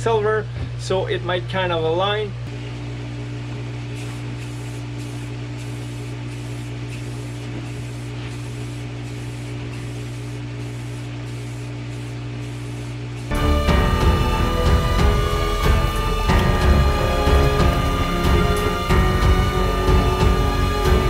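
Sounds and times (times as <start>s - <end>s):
steady low hum: 0.0s - 21.0s
spray paint hissing: 3.9s - 13.3s.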